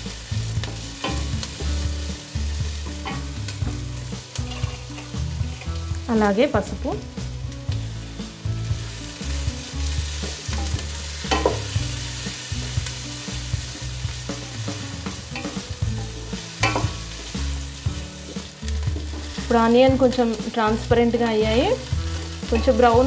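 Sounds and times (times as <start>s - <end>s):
onions sizzling in hot oil: 0.0s - 23.0s
wooden spatula scraping pan: 0.6s - 5.8s.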